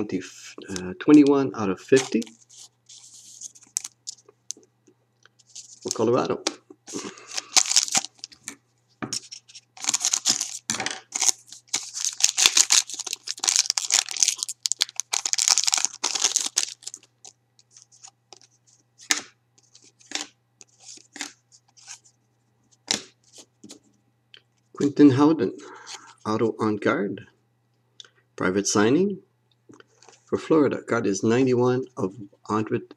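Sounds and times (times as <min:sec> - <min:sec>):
cards rustling and clicking: 0:02.0 - 0:04.2, 0:06.9 - 0:22.0
foil wrapper tearing and crinkling: 0:06.9 - 0:08.4, 0:09.2 - 0:18.4.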